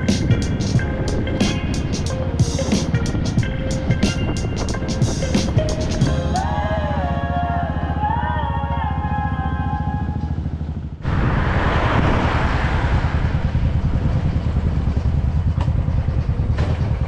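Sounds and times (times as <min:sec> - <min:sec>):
wind rushing on microphone: 0:00.0 - 0:06.0, 0:11.0 - 0:16.5
motorcycle engine running: 0:00.0 - 0:11.1, 0:13.2 - 0:17.0.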